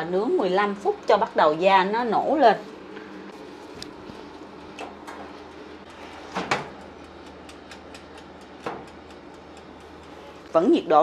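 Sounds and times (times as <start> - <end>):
steady low hum: 0.0 - 11.0
oven glass door shutting: 6.2 - 6.8.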